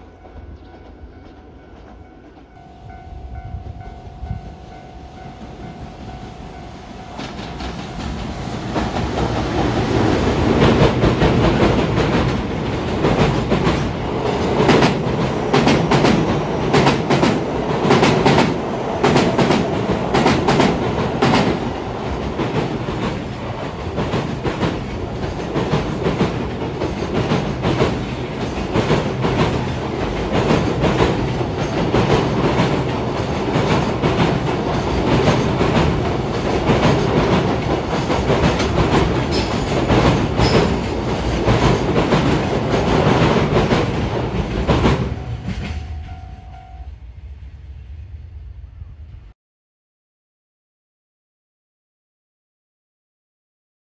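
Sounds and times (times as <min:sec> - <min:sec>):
train rumbling over bridge: 0:00.0 - 0:49.4
wheels clacking over rail joints: 0:07.1 - 0:45.8.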